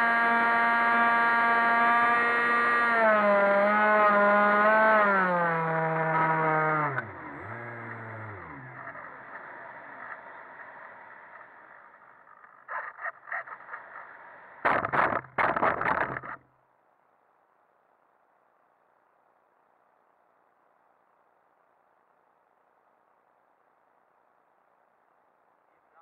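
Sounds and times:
electric motor whining: 0:00.0 - 0:11.6.

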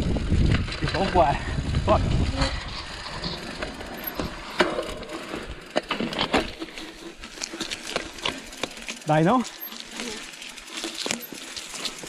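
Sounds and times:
bike rattling over bumps: 0:00.0 - 0:12.0
freewheel ratchet clicking: 0:03.6 - 0:06.6, 0:07.4 - 0:12.0.

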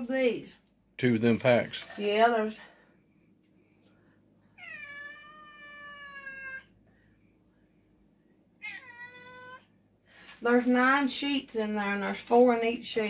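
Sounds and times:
cat meowing: 0:04.6 - 0:06.7, 0:08.6 - 0:09.7.

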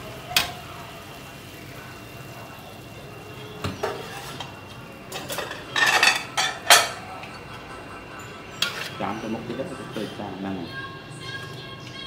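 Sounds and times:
dishes and utensils clattering: 0:03.6 - 0:09.1.

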